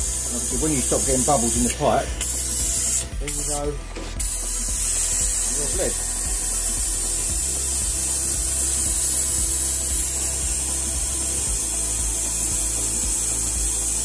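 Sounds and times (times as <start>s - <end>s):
pneumatic brake bleeder hissing: 0.0s - 14.0s.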